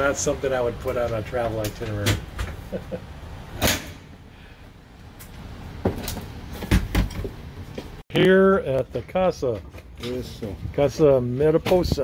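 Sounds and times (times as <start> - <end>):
knocks and clunks: 5.8 - 8.0.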